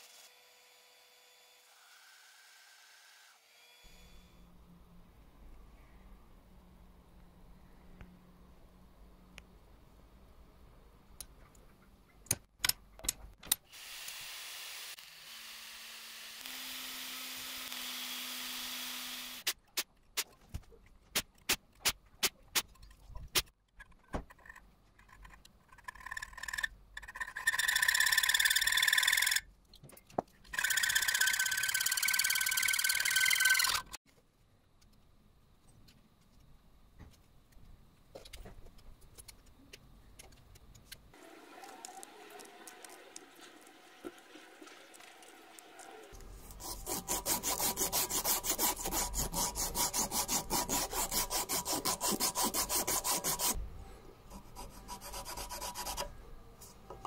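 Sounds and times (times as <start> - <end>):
power drill whine: 13.8 - 19.4
knife carving wood: 46.2 - 53.6
sanding strip rubbing wood: 46.5 - 53.6, 54.4 - 56.1.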